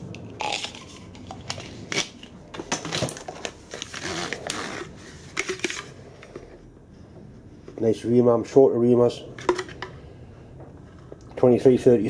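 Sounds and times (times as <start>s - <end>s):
plastic cases clicking and rattling: 0.2s - 4.6s, 5.3s - 6.0s, 9.4s - 9.9s.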